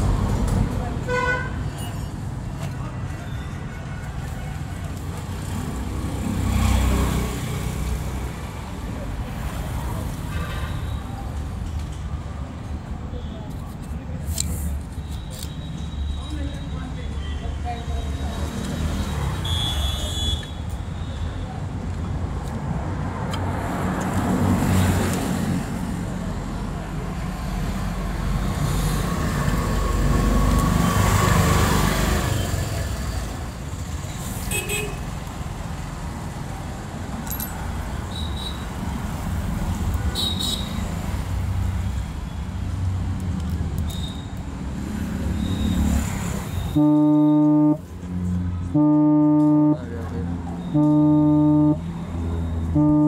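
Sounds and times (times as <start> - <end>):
road traffic noise: 0.0 - 53.0
vehicle horn blasts: 19.4 - 20.6, 46.6 - 47.8, 48.7 - 49.9, 50.6 - 51.9, 52.6 - 53.0.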